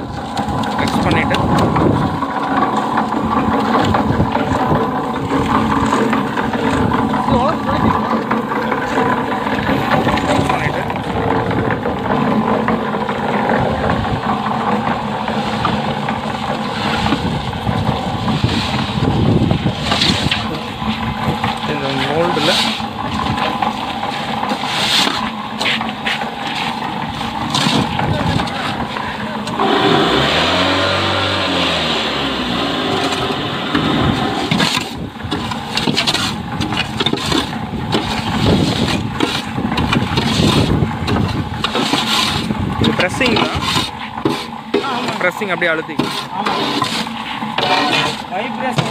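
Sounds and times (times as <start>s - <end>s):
block making machine motor running: 0.0s - 48.9s
shovel scraping concrete mix on metal: 12.2s - 48.9s.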